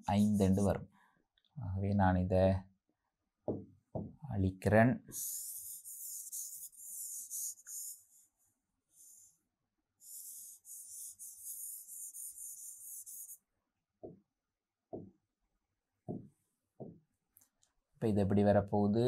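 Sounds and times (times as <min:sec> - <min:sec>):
hand rubbing on glass: 0:00.0 - 0:00.7, 0:05.2 - 0:08.0, 0:10.0 - 0:13.4.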